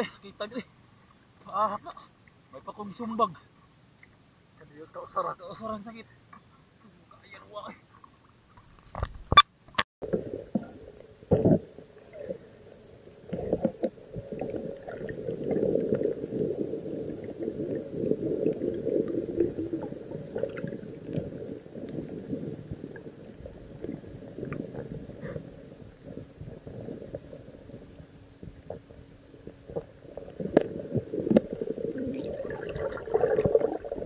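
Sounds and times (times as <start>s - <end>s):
underwater churning rumble: 13.2s - 34.0s.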